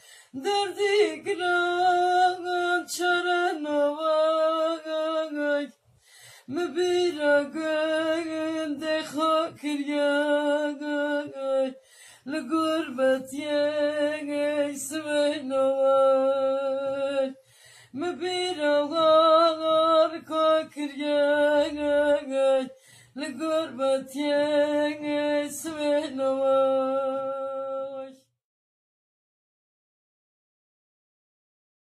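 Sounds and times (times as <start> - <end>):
person singing a lament: 18.0 - 28.2.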